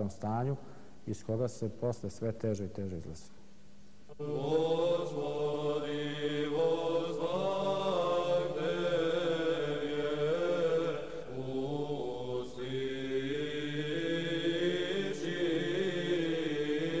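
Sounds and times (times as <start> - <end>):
slow vocal chant: 4.1 - 17.0.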